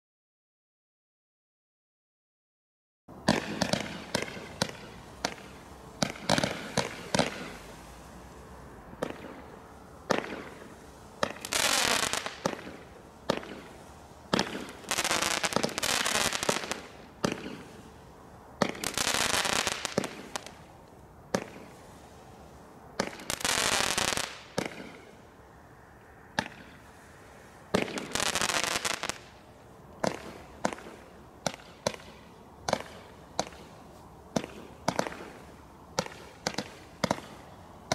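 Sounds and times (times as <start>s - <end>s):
fireworks bangs and cracks: 3.2s - 8.1s, 9.0s - 17.9s, 18.6s - 20.7s, 21.3s - 22.2s, 23.0s - 25.2s, 26.3s - 27.1s, 27.7s - 29.4s, 30.0s - 37.9s
fireworks hissing rushes: 3.3s - 25.6s, 26.4s - 37.5s.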